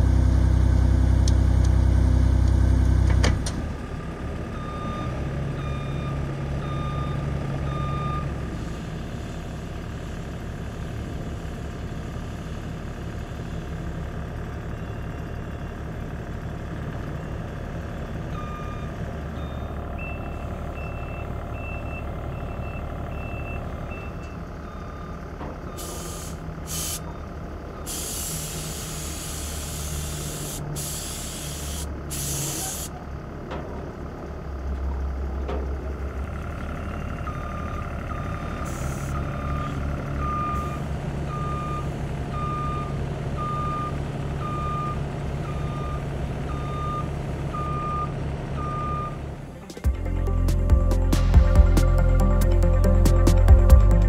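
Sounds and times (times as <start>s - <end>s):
engine running: 0.0s - 54.0s
vehicle back-up alarm beeping: 4.5s - 8.6s, 14.6s - 15.8s, 17.2s - 32.9s, 36.4s - 49.2s
paint spray gun hissing: 25.8s - 27.0s, 27.9s - 32.9s.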